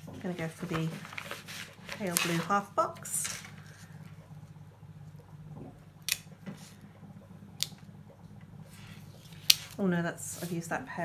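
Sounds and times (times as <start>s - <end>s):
faint low hum: 0.0s - 11.0s
paper handling: 0.3s - 3.9s.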